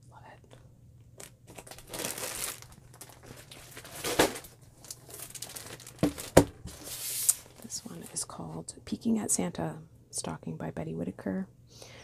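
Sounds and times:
plastic packaging crinkling: 0:01.2 - 0:08.2.

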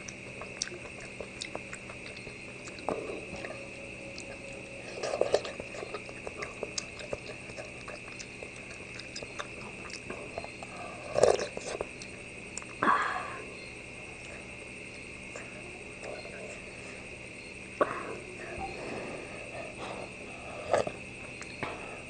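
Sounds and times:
chewing and slurping: 0:00.0 - 0:12.8, 0:18.1 - 0:22.0
steady high whine: 0:00.0 - 0:22.0.

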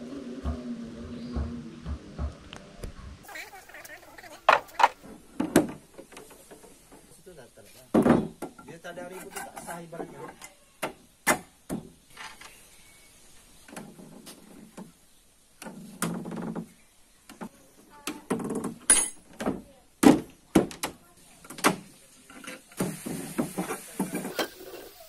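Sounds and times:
wooden knocks and thunks: 0:01.3 - 0:02.6, 0:04.4 - 0:07.2, 0:07.9 - 0:08.8, 0:10.0 - 0:12.4, 0:15.6 - 0:21.9, 0:22.8 - 0:24.4.

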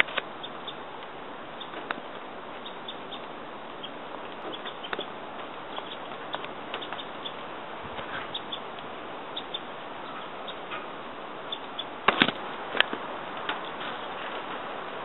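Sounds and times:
high chirps and ticks: 0:00.0 - 0:07.4, 0:08.3 - 0:10.8, 0:11.4 - 0:12.0
light rain hissing: 0:00.0 - 0:15.0.

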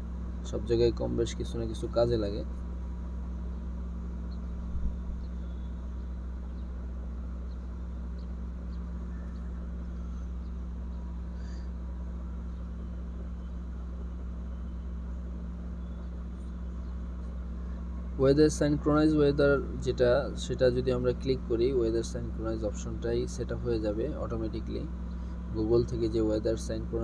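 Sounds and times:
low room hum: 0:00.0 - 0:27.0.

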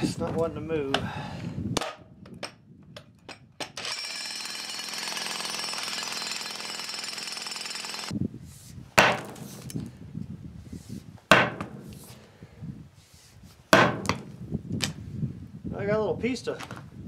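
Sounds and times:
electric jackhammer hammering ground: 0:03.6 - 0:08.2.

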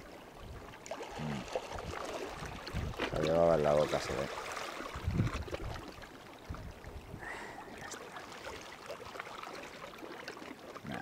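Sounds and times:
sea water lapping among rocks: 0:00.0 - 0:11.0.

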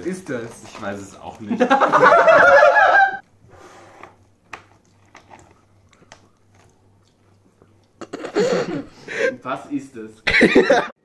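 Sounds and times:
person laughing: 0:01.5 - 0:03.2, 0:10.3 - 0:11.0
chewing a crunchy snack: 0:04.1 - 0:08.1.

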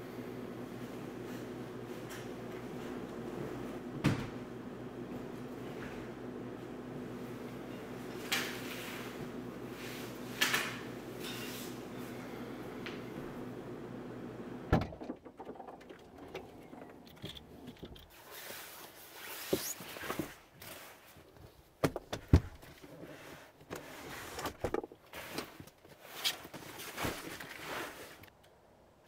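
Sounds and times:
luggage rustling and scraping: 0:22.2 - 0:28.3.

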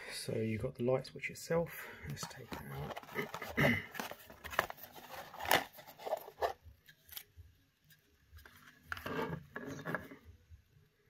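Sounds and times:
cardboard and plastic rustling: 0:02.1 - 0:07.2.

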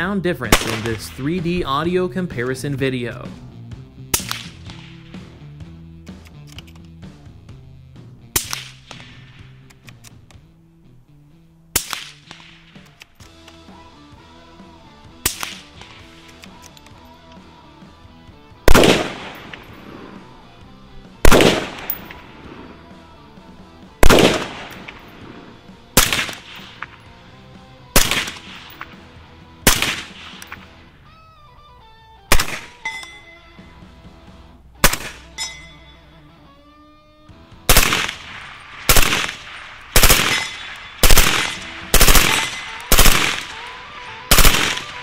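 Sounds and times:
background music: 0:00.0 - 0:45.0
rifle shots: 0:00.4 - 0:01.6, 0:04.1 - 0:05.3, 0:08.3 - 0:09.6, 0:11.7 - 0:12.9, 0:15.2 - 0:16.3, 0:18.6 - 0:20.3, 0:21.2 - 0:22.9, 0:24.0 - 0:27.1, 0:27.9 - 0:29.0, 0:29.6 - 0:30.8, 0:32.3 - 0:32.9, 0:34.8 - 0:35.3, 0:37.7 - 0:45.0
suppressed rifle shots: 0:00.5 - 0:01.2, 0:04.1 - 0:05.3, 0:08.3 - 0:10.2, 0:11.7 - 0:13.2, 0:15.2 - 0:16.6, 0:18.6 - 0:20.2, 0:21.2 - 0:22.8, 0:24.0 - 0:27.1, 0:27.9 - 0:29.0, 0:29.6 - 0:30.8, 0:32.3 - 0:33.0, 0:34.8 - 0:35.4, 0:37.7 - 0:45.0.

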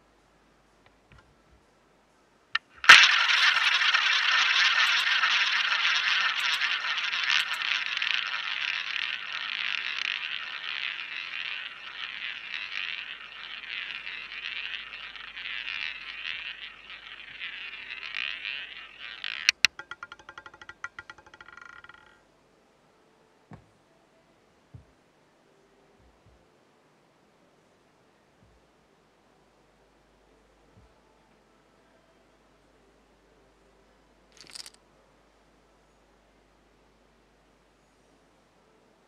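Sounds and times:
roulette ball launch click: 0:02.6 - 0:22.1
roulette ball rolling whir: 0:02.6 - 0:22.2, 0:34.4 - 0:34.8.

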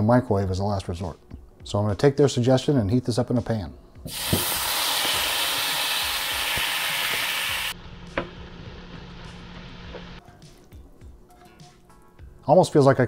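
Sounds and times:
food sizzling in frying pan: 0:04.1 - 0:10.2.

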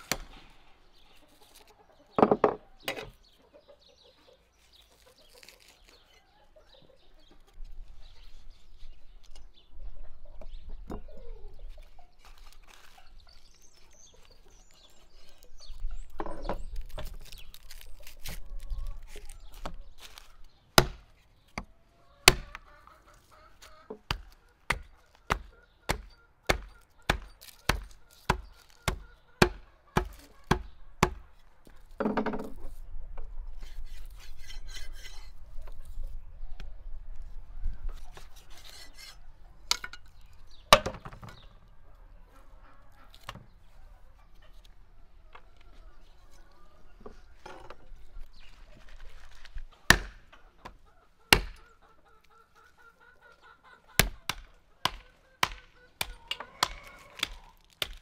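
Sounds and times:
chickens clucking: 0:00.0 - 0:16.8, 0:17.8 - 0:33.8, 0:34.4 - 0:57.6
cleaver chopping on wooden block: 0:20.8 - 0:21.0, 0:21.6 - 0:22.6, 0:24.1 - 0:31.2, 0:49.9 - 0:50.2, 0:54.0 - 0:58.0.

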